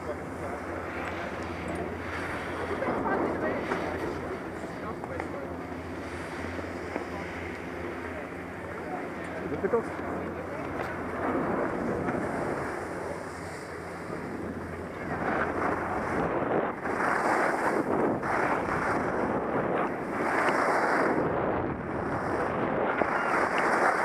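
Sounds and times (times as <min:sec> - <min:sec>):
wind rushing over microphone: 0:00.0 - 0:24.0
skis scraping over packed snow: 0:08.8 - 0:13.7, 0:15.0 - 0:21.3, 0:22.2 - 0:24.0.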